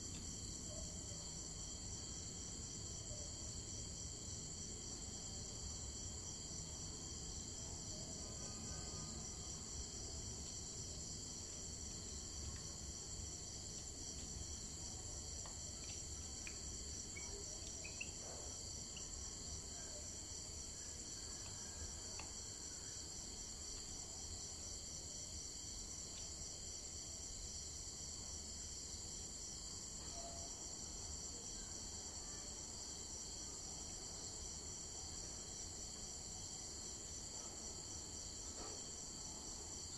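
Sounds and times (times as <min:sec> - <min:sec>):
insects trilling: 0:08.0 - 0:24.1.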